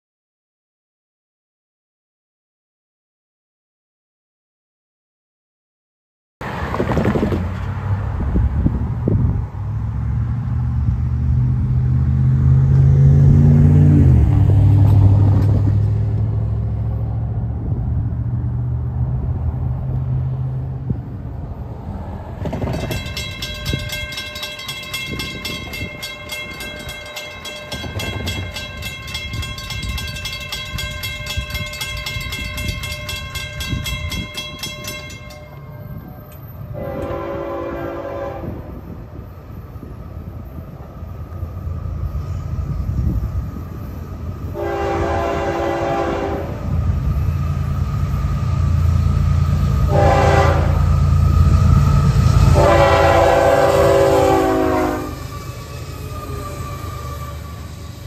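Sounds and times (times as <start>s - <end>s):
passing road vehicle drone: 6.4s - 58.0s
railroad crossing bell ringing: 22.4s - 38.3s, 47.2s - 58.0s.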